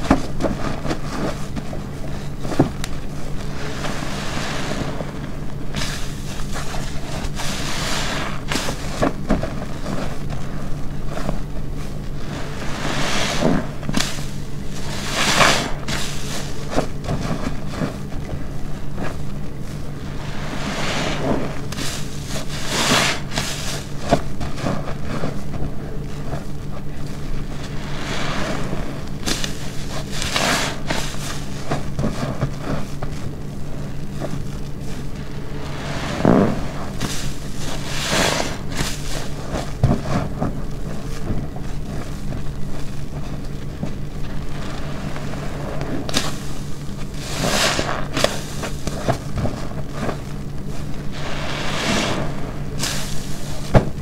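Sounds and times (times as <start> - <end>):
low steady hum: 0.0 - 54.0
wet sponge squelching: 0.0 - 54.0.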